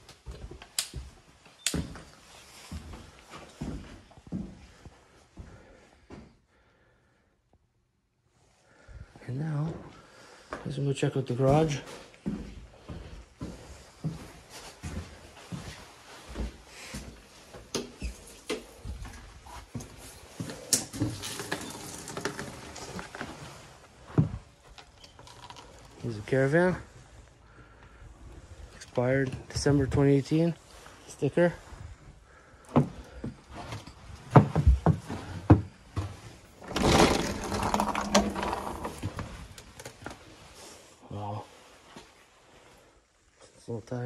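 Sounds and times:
wooden door scraping and creaking: 0:20.6 - 0:26.1, 0:33.8 - 0:40.3
heavy footsteps: 0:31.7 - 0:39.6.

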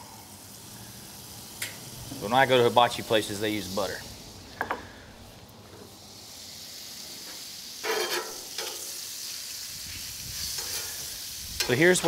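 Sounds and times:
butter sizzling on griddle: 0:00.0 - 0:12.0
metal spatula spreading: 0:07.8 - 0:08.8, 0:10.4 - 0:11.0.

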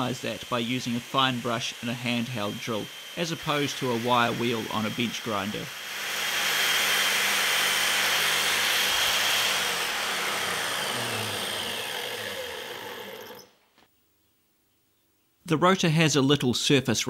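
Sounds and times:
drill motor hum: 0:00.0 - 0:13.6.

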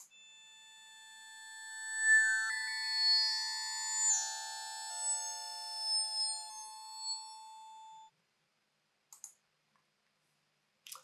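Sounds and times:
eerie synthesizer pad: 0:00.5 - 0:08.1.

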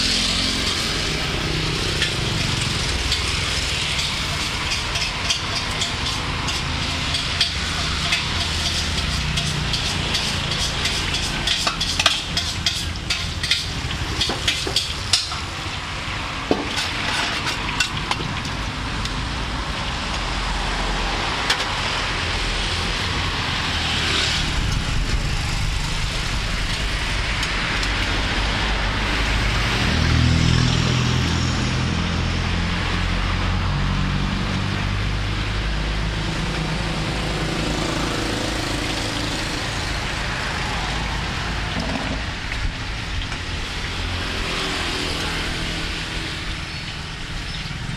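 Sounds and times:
metal ladle scraping wok: 0:00.0 - 0:19.0, 0:38.4 - 0:47.6
hot oil sizzling in a wok: 0:00.0 - 0:31.0, 0:31.6 - 0:47.9.

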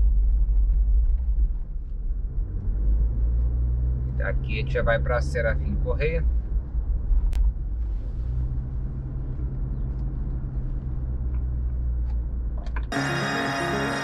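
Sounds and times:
car engine and road rumble: 0:00.0 - 0:14.0
background music: 0:12.9 - 0:14.0.

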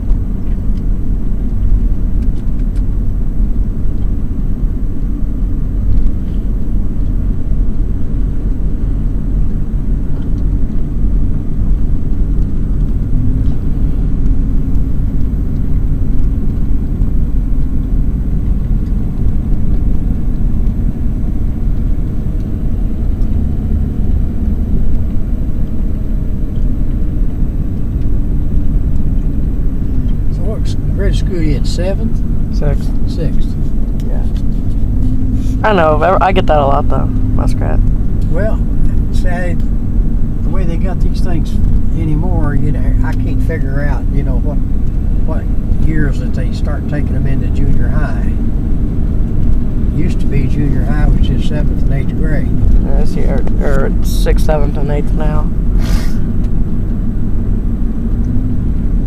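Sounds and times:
truck engine and road noise: 0:00.0 - 0:59.0.

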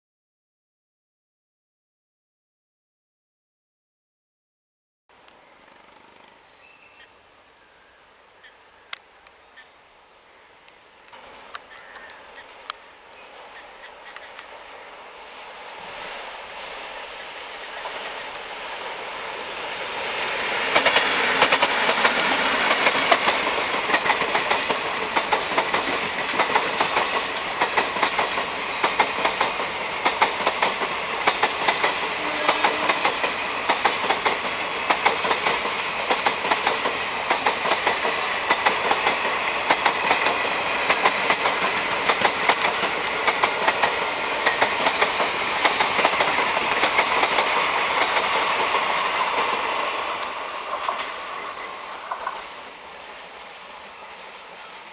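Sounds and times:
steady train rumble: 0:05.1 - 0:54.9
train wheels clattering over rail joints: 0:19.9 - 0:52.6.

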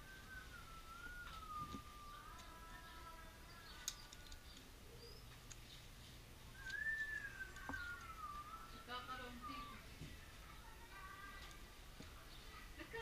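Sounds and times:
wavering whistled tone: 0:00.0 - 0:02.5, 0:06.5 - 0:09.8.

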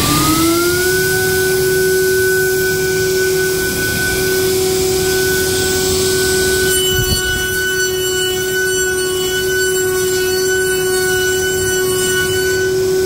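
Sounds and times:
router spindle whine: 0:00.0 - 0:13.0
higher tones: 0:01.1 - 0:13.0.

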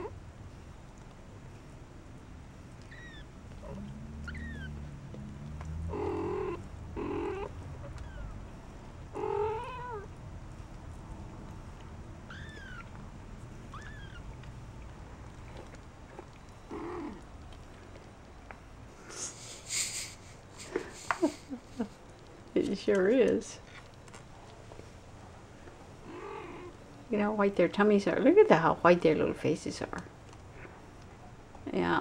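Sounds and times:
kittens squeaking: 0:02.8 - 0:04.9, 0:05.8 - 0:08.5, 0:09.2 - 0:10.1, 0:12.2 - 0:13.0, 0:13.6 - 0:14.4
cat purring: 0:02.8 - 0:11.6, 0:12.3 - 0:18.1, 0:26.0 - 0:26.8
cat meowing: 0:02.9 - 0:04.8, 0:09.2 - 0:10.1, 0:12.3 - 0:12.9, 0:13.7 - 0:14.3.

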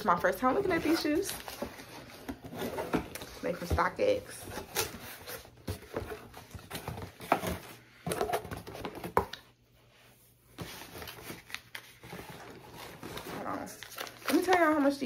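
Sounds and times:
cardboard box being handled: 0:00.4 - 0:09.3.

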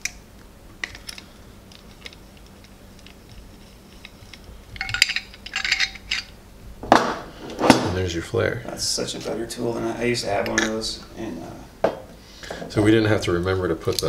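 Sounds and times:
metal clinks and rattles: 0:03.9 - 0:06.4.

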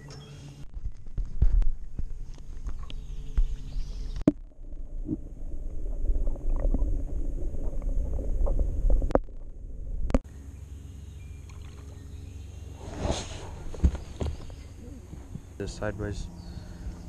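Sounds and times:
underwater rumble and sloshing: 0:00.7 - 0:10.3.

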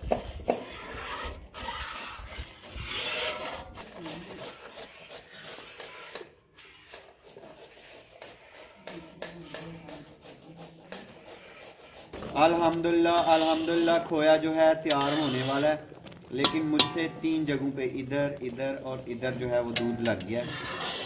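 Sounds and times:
rasping kitchen scraping: 0:00.0 - 0:21.0.

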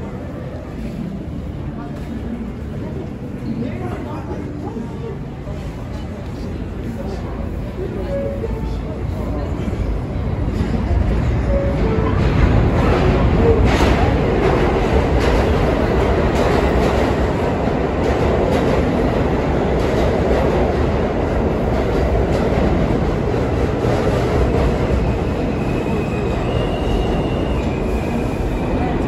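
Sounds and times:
subway train running: 0:00.0 - 0:29.0.

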